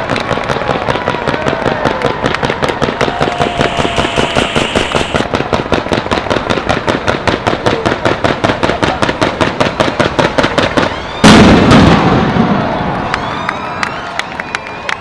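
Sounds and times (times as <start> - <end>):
loud firework bang with rumble: 0.0 - 13.0
fireworks sharp reports: 0.0 - 15.0.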